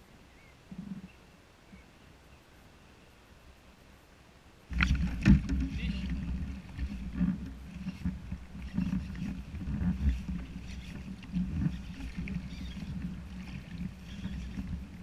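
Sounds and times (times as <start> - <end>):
water sloshing against float tube: 4.7 - 15.0.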